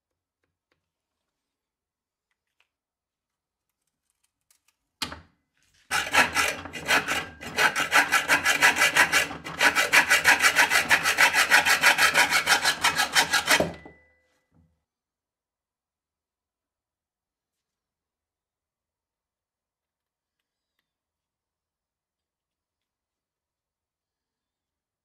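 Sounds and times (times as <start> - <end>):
hacksaw cutting metal: 5.9 - 14.0.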